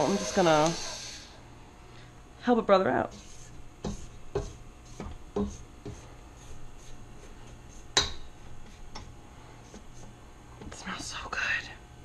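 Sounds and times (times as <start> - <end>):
dough hook knocking in bowl: 3.8 - 6.0, 7.9 - 8.3.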